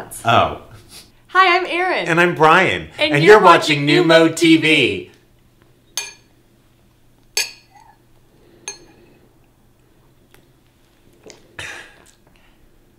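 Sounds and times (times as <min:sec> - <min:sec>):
wine glasses clinking: 0:06.0 - 0:06.3, 0:07.4 - 0:08.0, 0:08.7 - 0:09.0.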